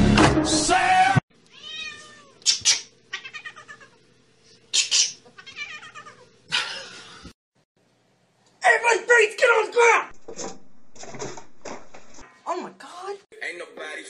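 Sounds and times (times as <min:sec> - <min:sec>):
music: 0:00.0 - 0:01.2
cat meowing and yowling: 0:01.5 - 0:02.4, 0:03.1 - 0:04.0, 0:05.4 - 0:06.3.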